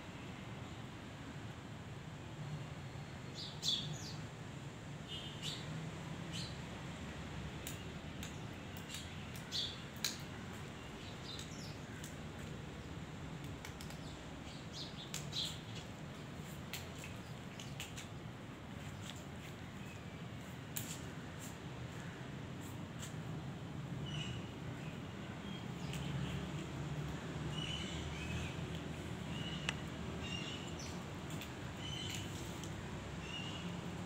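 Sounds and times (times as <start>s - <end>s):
small birds chirping: 7.6s - 23.2s, 24.0s - 34.0s.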